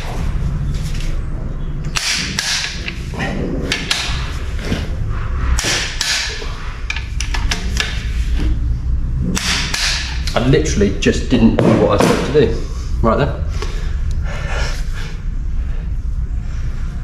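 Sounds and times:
low steady hum: 0.0 - 17.0
socket wrench ratcheting: 6.9 - 8.0.

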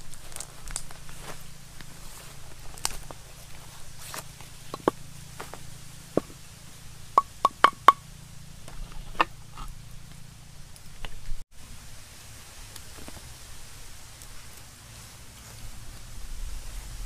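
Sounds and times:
pestle knocking in clay mortar: 7.2 - 8.0.

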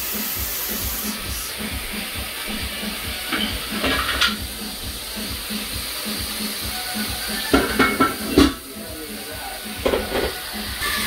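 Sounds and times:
vegetables sizzling in oil: 0.0 - 11.0
spatula scraping a frying pan: 3.3 - 4.4.

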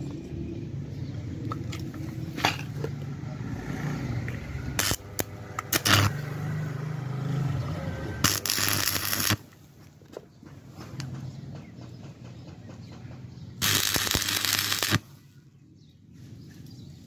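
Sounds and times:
electric arc welding crackling: 4.8 - 6.2, 8.2 - 9.5, 13.6 - 15.0.

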